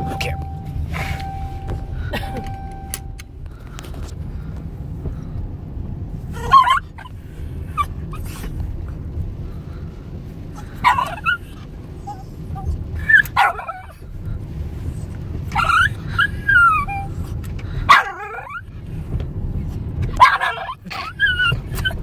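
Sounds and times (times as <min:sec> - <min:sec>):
car low rumble: 0:00.0 - 0:22.0
dog yelping barks: 0:06.4 - 0:07.1, 0:10.8 - 0:14.0, 0:15.5 - 0:17.1, 0:17.9 - 0:18.6, 0:20.1 - 0:22.0.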